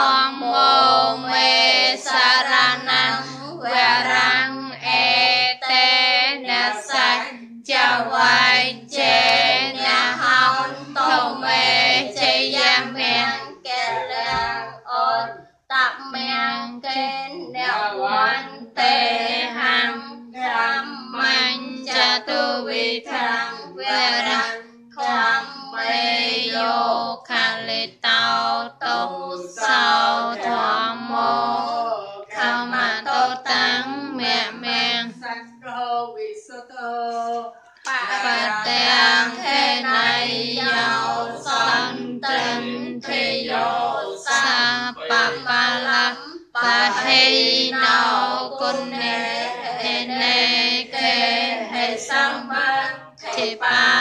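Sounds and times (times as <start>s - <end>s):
person singing a chant: 0.0s - 54.0s.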